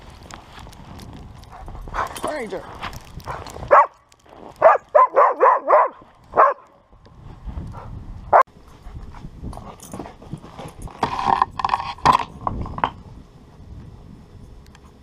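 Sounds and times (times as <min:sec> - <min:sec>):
dog barking: 0:03.7 - 0:04.0, 0:04.6 - 0:06.7.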